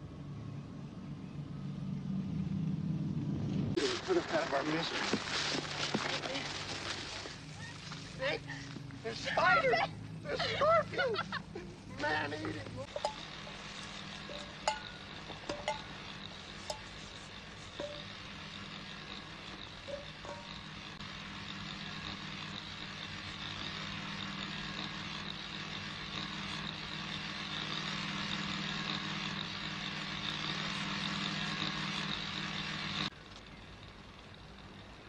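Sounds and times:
generator engine droning: 0:07.2 - 0:35.0.

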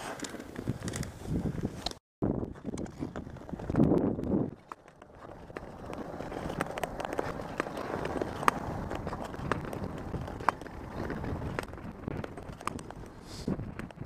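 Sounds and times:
ice skates scraping on ice: 0:00.0 - 0:01.8, 0:04.5 - 0:13.6.

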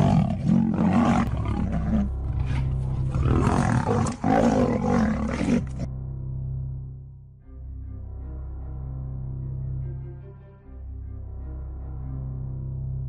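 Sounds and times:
big cat roaring: 0:00.0 - 0:05.9.

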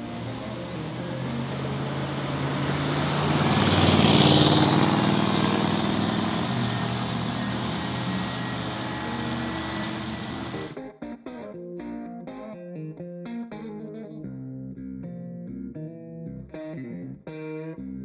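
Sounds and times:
car driving past: 0:00.0 - 0:10.8.

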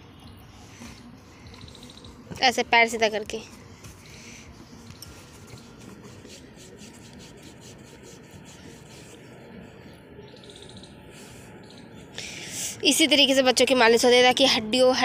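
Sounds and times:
hands rubbing skin and cloth: 0:03.5 - 0:09.3.

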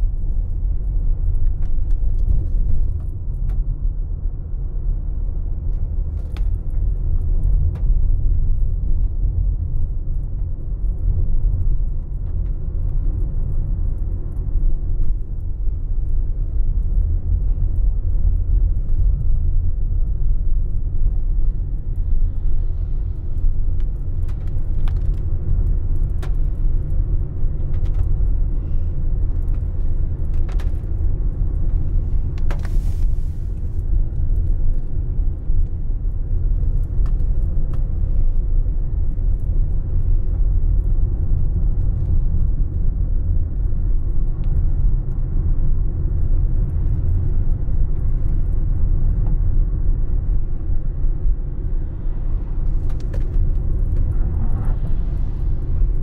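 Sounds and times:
car driving on a wet road: 0:04.4 - 0:56.0
light ticks: 0:05.6 - 0:50.4.

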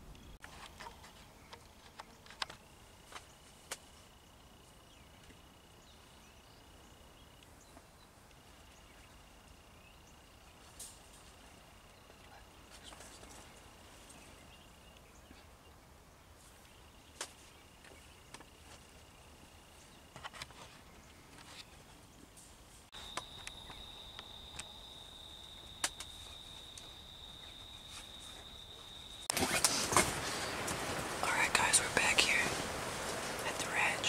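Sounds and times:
insect trilling: 0:23.0 - 0:29.3.

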